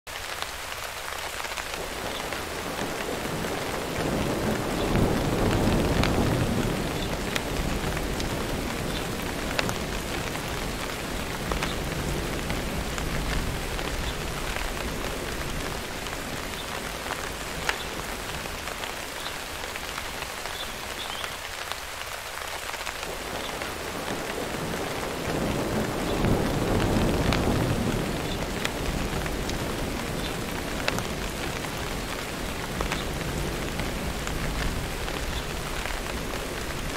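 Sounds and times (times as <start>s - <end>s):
heavy rain: 0.1s - 36.9s
thunder rolling: 2.6s - 16.4s, 24.0s - 31.2s.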